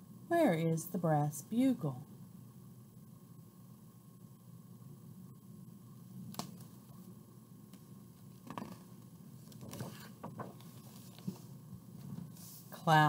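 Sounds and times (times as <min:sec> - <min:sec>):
paper page rustling and turning: 0:08.2 - 0:12.8.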